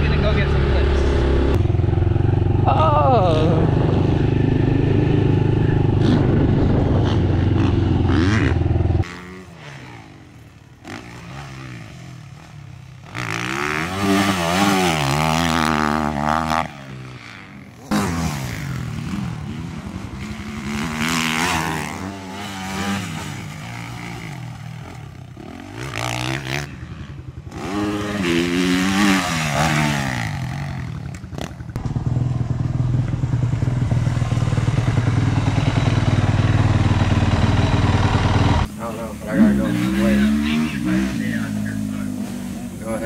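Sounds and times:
motocross bike engine revving: 0.0 - 43.0
loud engine at steady pitch: 31.0 - 43.0.

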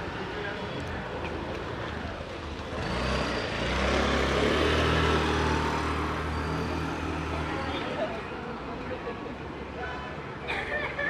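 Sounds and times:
vehicle engine passing: 2.6 - 8.0.

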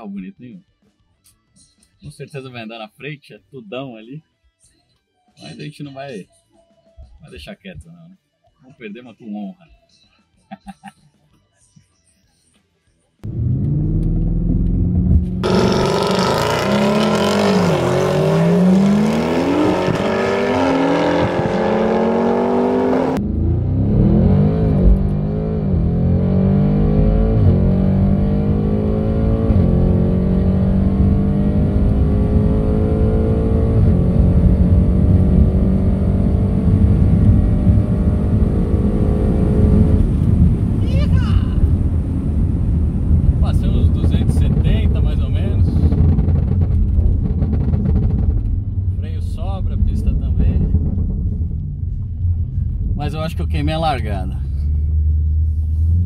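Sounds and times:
car engine accelerating hard: 13.2 - 40.8.

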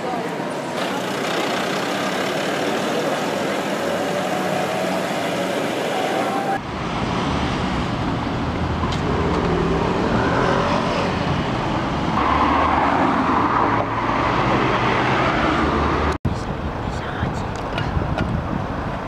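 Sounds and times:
cars driving past: 0.6 - 16.2.

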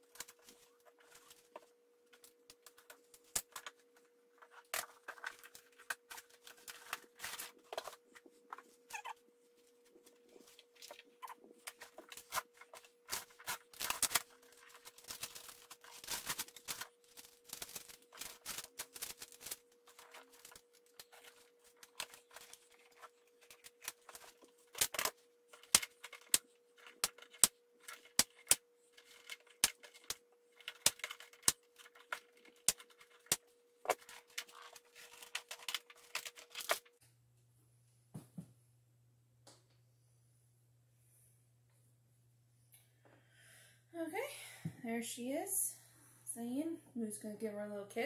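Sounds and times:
faint steady hum: 0.0 - 48.0
cardboard packaging rustling: 2.6 - 8.7, 10.0 - 37.0.

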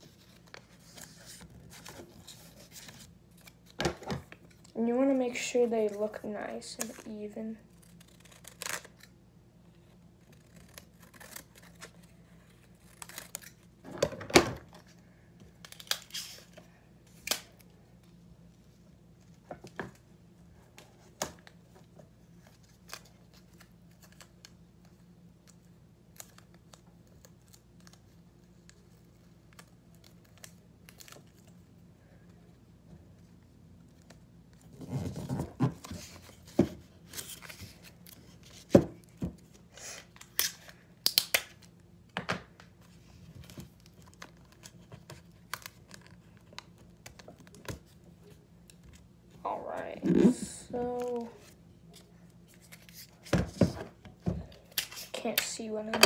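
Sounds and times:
paper and tape crinkling: 10.2 - 13.8, 21.4 - 31.7, 42.8 - 53.3
scissors snipping paper: 10.3 - 12.0.

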